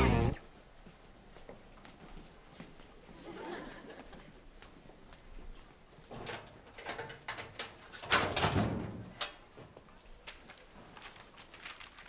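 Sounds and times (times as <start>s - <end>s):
metal locker door clatter: 6.2s - 9.4s.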